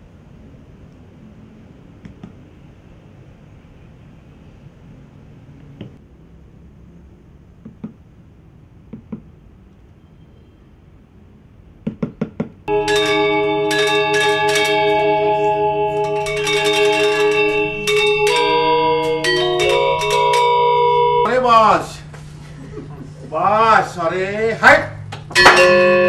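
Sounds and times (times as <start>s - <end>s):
gamelan music: 12.7s - 22.9s, 25.3s - 26.0s.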